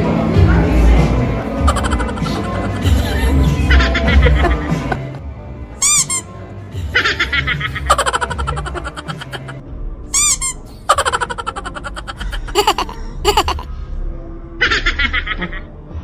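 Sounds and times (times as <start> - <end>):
person giggling: 1.6 - 5.2, 7.9 - 9.6, 10.9 - 13.7.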